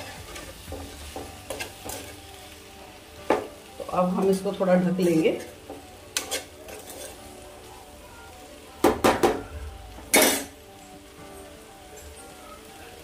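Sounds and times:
curry sizzling faintly: 0.0s - 13.0s
metal spatula clattering on pan: 5.4s - 7.2s.

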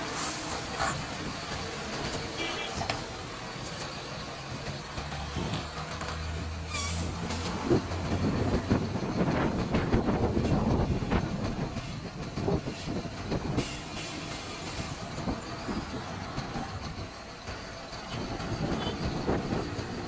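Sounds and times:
truck tyres crackling and creaking: 0.0s - 20.0s
brief air hisses: 6.7s - 7.2s.

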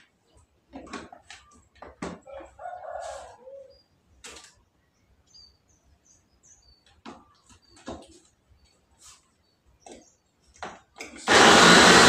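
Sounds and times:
small birds chirping: 3.4s - 10.6s.

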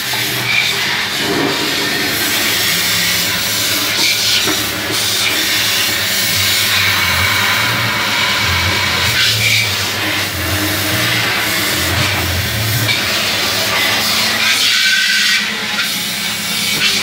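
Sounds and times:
hose water jet hissing: 0.0s - 17.0s.

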